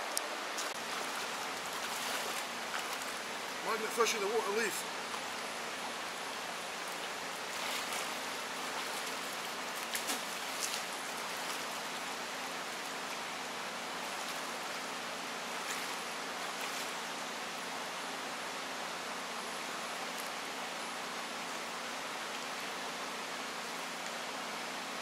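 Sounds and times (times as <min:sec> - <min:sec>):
river rushing over stones: 0:00.0 - 0:25.0
splashes from wading: 0:00.6 - 0:17.3.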